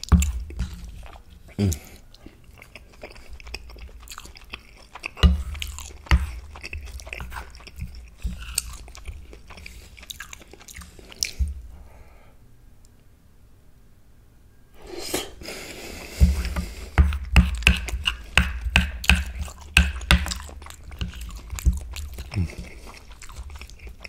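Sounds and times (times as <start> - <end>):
chewing and wet mouth sounds: 0.0 - 11.9, 15.1 - 24.0
dull thumps: 16.1 - 20.4.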